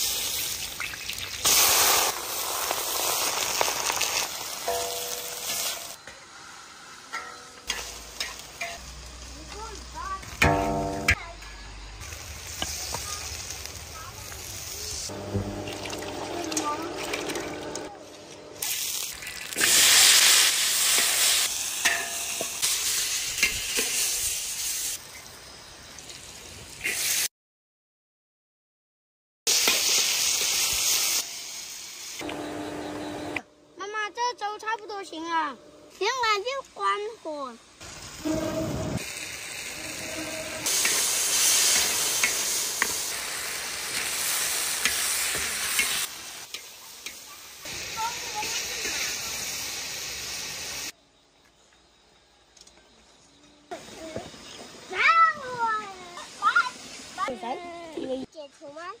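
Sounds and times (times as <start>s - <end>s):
oil sizzling in a wok: 0.0s - 27.3s, 29.5s - 51.0s, 53.7s - 59.0s
spatula scraping a wok: 38.2s - 47.2s.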